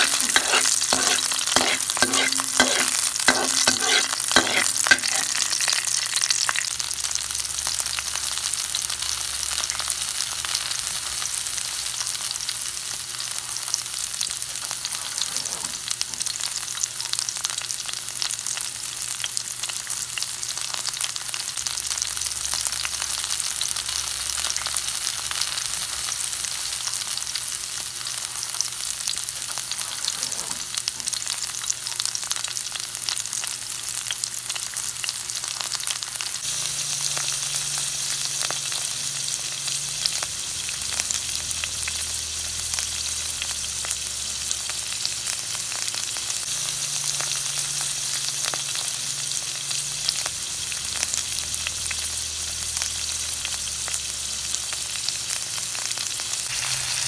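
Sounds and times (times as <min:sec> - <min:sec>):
vegetables sizzling in hot oil: 0:00.0 - 0:57.0.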